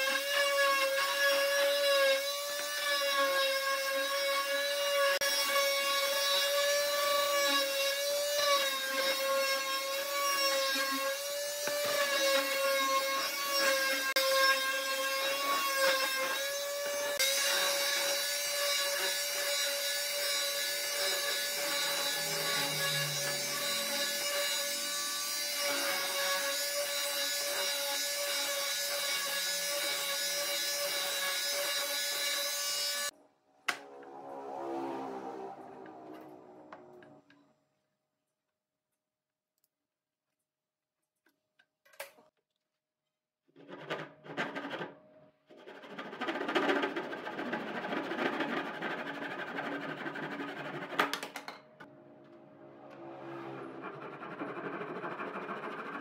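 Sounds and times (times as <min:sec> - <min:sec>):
electric palm sander running: 0:15.3 - 0:26.8
hand saw rasping through wood: 0:53.8 - 0:56.0.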